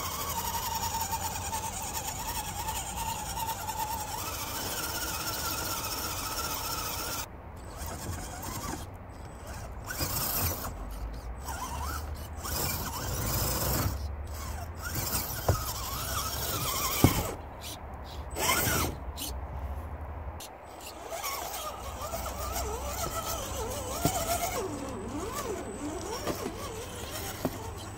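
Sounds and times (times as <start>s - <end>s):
rc truck electric motor whining: 0.0s - 19.4s, 20.4s - 27.9s
truck knocking against wood: 14.8s - 17.4s, 22.9s - 24.6s, 26.0s - 27.9s.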